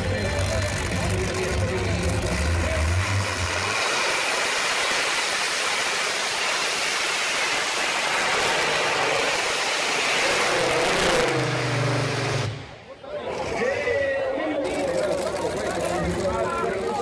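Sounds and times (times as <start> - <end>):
tractor engine roaring under load: 0.0 - 12.8.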